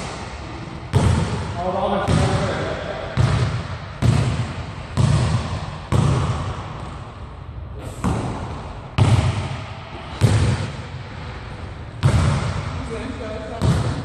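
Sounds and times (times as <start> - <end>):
basketball bouncing on wooden floor: 0.9 - 1.4, 3.2 - 7.0, 8.0 - 9.6, 10.2 - 10.7, 12.0 - 12.7, 13.6 - 14.0.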